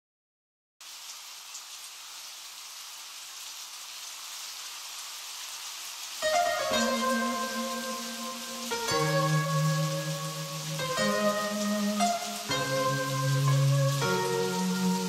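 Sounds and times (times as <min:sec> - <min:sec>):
steady rain: 0:00.8 - 0:15.0
music with ringing notes: 0:06.2 - 0:15.0.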